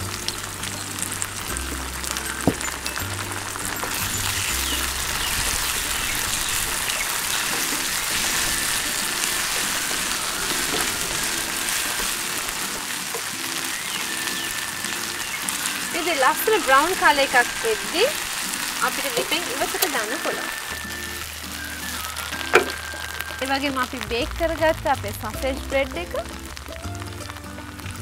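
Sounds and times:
background music: 0.0 - 28.0
vegetables sizzling in a frying pan: 0.0 - 28.0
spatula stirring in a pan: 2.5 - 14.1.

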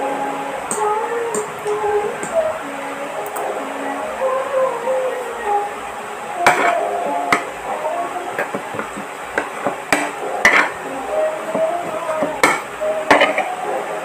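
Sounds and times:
cutlery clinking on a plate: 6.5 - 6.8, 8.4 - 10.8, 12.2 - 13.5.

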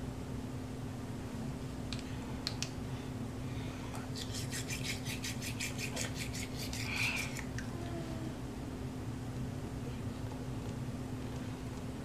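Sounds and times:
steady low hum: 0.0 - 12.0
toothbrush scrubbing teeth: 4.1 - 7.6.

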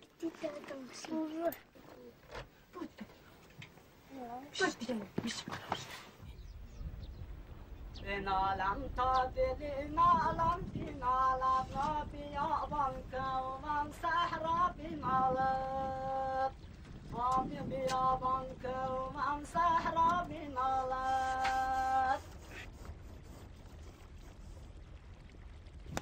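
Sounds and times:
high voice singing: 17.1 - 22.4.

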